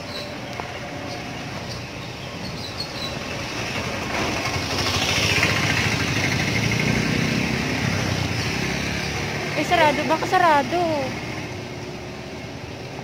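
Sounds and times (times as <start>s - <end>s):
motor vehicle passing close by: 2.6s - 12.2s.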